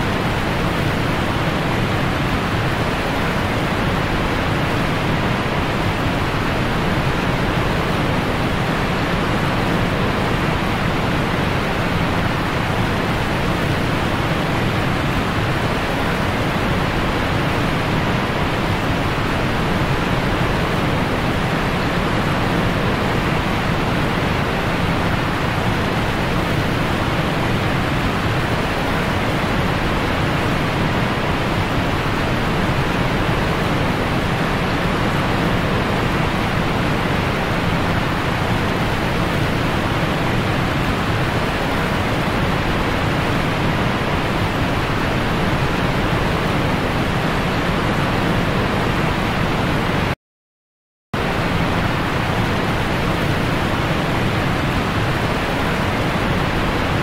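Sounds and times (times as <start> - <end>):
steady rushing noise: 0.0 - 50.2, 51.2 - 57.0.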